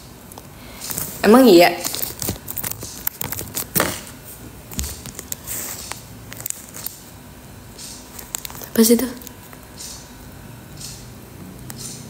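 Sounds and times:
phone handling clicks and rustling: 1.8 - 4.1.

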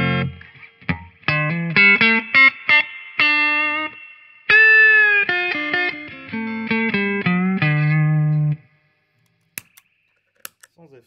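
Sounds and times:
electric guitar lick: 0.0 - 8.8.

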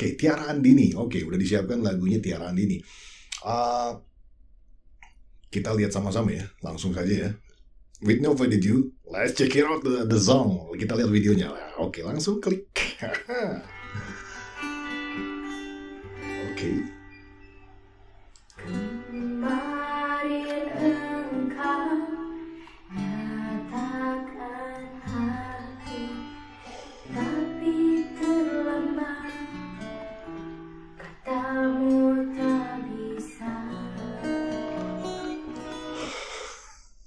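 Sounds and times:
guitar accompaniment: 13.0 - 36.5
woman singing softly: 18.7 - 29.8, 31.2 - 35.0.

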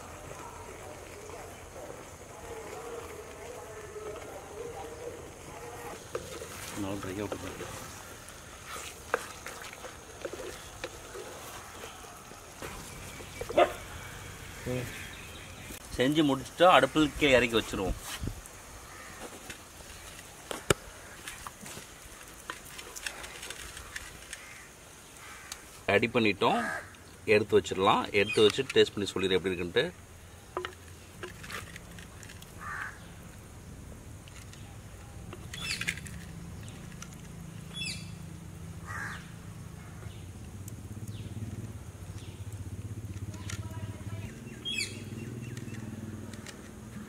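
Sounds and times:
crows cawing: 13.6 - 15.4, 18.8 - 19.5, 20.5 - 21.5, 23.6 - 25.8, 26.5 - 27.1, 32.6 - 33.2, 38.8 - 39.4.

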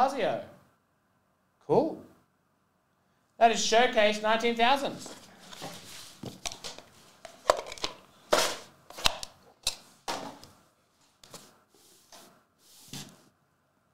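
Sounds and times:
cardboard scrape: 5.2 - 6.4, 11.3 - 13.3.

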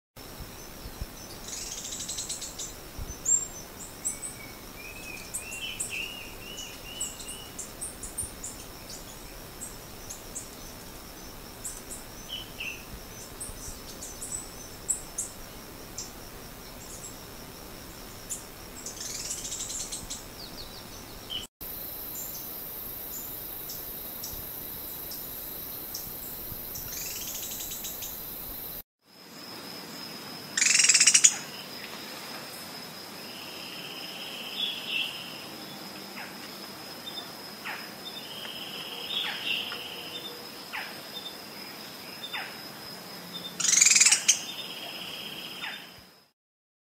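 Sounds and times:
downward-sweeping bird calls: 30.6 - 31.5, 37.7 - 41.0, 43.6 - 45.9
bird calling with sharp high notes: 43.6 - 44.6.

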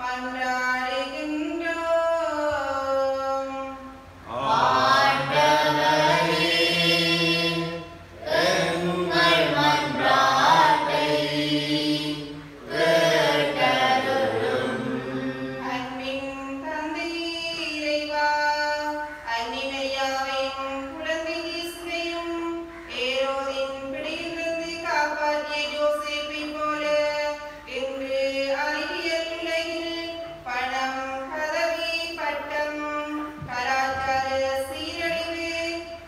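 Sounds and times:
group singing together: 4.2 - 16.0.

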